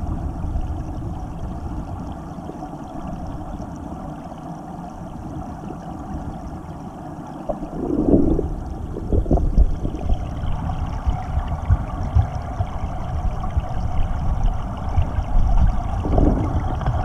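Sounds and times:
muffled underwater water rumble: 0.0s - 17.0s.

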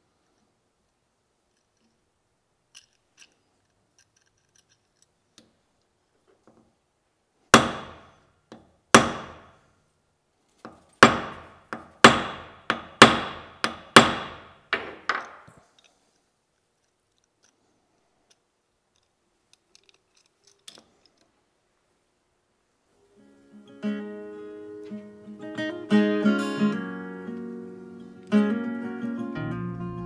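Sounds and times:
hammer striking steel: 7.6s - 8.1s, 9.0s - 9.5s, 11.0s - 15.2s.

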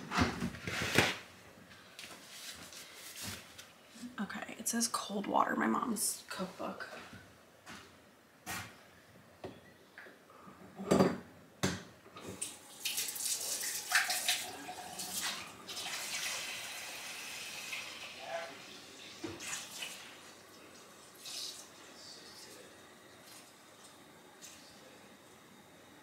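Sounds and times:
tap water running into pot: 12.4s - 18.3s.

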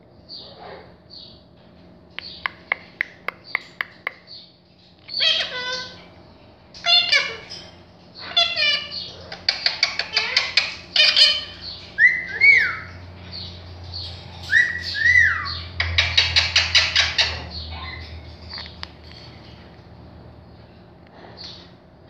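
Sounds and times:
parakeet clicking chatter: 2.2s - 6.0s, 6.7s - 19.7s.

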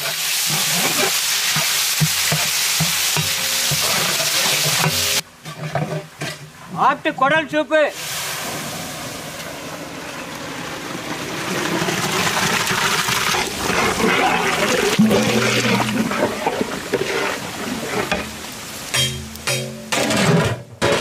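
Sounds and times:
liquid pouring and splashing: 11.2s - 18.4s.

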